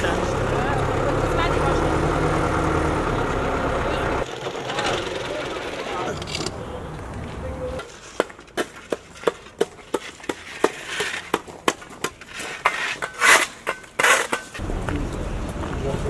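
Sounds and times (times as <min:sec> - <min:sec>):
metal shovels chipping ice: 0:09.0 - 0:14.6.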